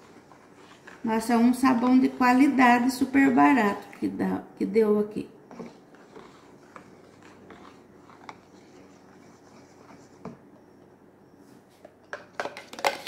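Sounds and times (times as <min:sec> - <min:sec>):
liquid soap swishing: 0:00.0 - 0:02.9, 0:05.6 - 0:10.2.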